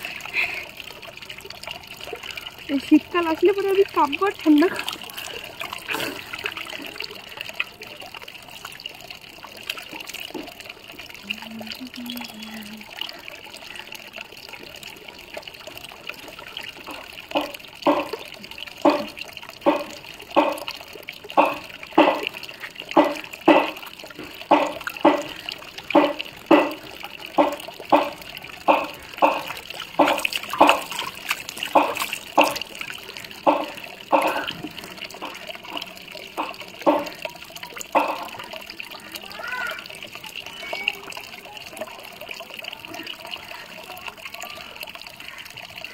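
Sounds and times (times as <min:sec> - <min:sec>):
water running into a bucket: 0:00.0 - 0:45.9
wet slaps and splashes: 0:27.4 - 0:32.8.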